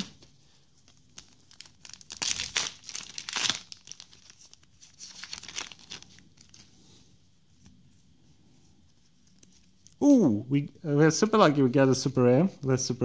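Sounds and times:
foil wrapper crinkling: 0:00.8 - 0:06.7
foil wrapper tearing: 0:01.1 - 0:06.6.

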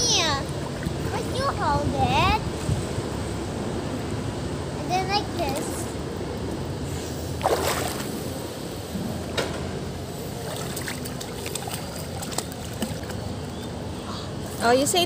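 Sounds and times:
pool water splashing: 0:00.0 - 0:01.7, 0:04.9 - 0:08.6, 0:09.9 - 0:13.9
steady low hum: 0:00.0 - 0:15.0.

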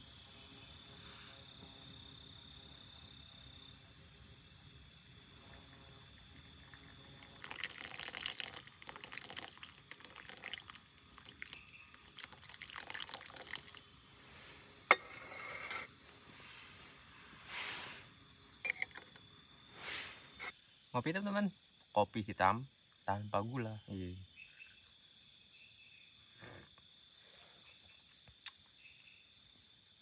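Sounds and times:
crickets chirping: 0:00.0 - 0:30.0
water pouring into metal filter: 0:06.0 - 0:14.0
kettle clinking on table: 0:18.6 - 0:19.2.

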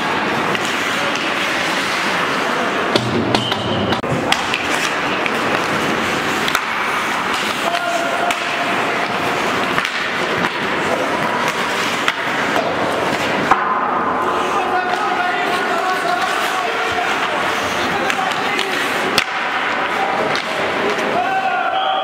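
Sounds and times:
hockey sticks and puck clacks: 0:00.0 - 0:21.7
skates scraping on ice: 0:00.0 - 0:21.7
players shouting: 0:00.0 - 0:22.0.

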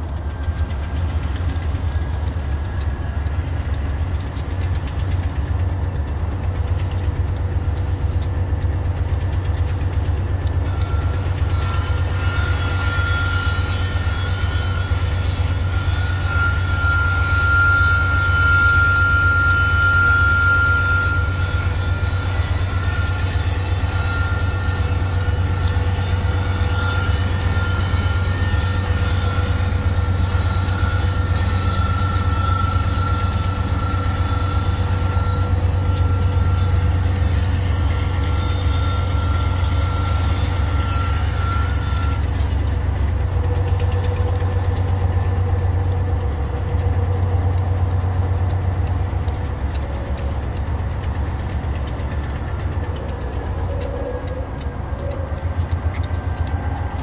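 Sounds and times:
locomotive engine rumble: 0:00.0 - 0:57.0
high whine: 0:10.5 - 0:42.8.

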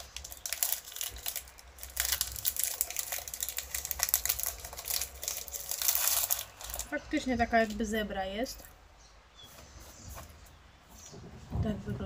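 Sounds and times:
foil wrapper crinkling: 0:00.0 - 0:07.9.

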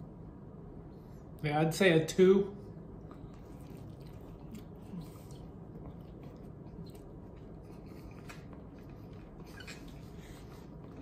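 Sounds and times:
chewing noodles: 0:03.1 - 0:11.0.

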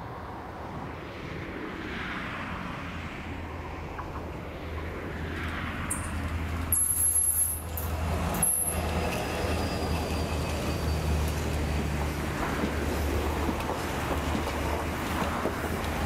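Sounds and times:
diesel locomotive engine drone: 0:00.0 - 0:16.0
train wheels rumbling on rail: 0:05.0 - 0:16.0
high-pitched wheel squeals: 0:08.4 - 0:12.0.

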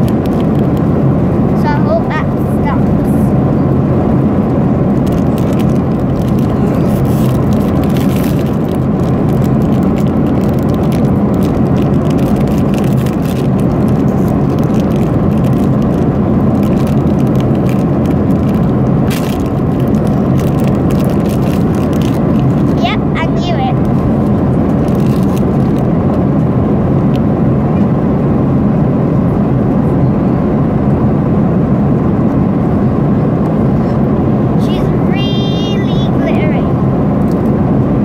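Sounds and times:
airliner cabin drone: 0:00.0 - 0:38.0
foil wrapping crinkling: 0:05.1 - 0:22.8, 0:23.9 - 0:25.8.

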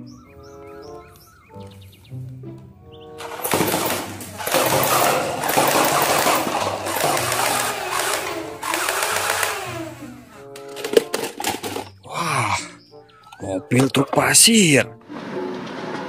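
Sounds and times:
toy blaster firing automatic bursts: 0:03.2 - 0:11.8
paper cups clattering: 0:03.2 - 0:12.2.

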